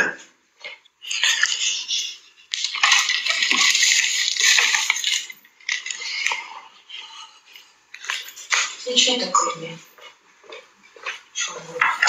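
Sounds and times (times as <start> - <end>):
small hard objects clinking: 2.5 - 6.4.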